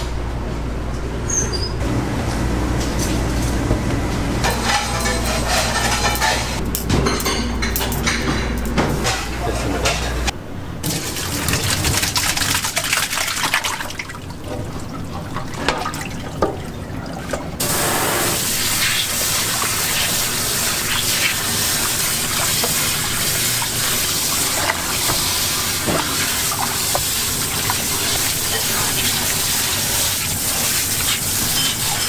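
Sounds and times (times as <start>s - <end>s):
liquid pouring and splashing: 10.9s - 32.0s
faucet sprayer running water: 17.6s - 32.0s.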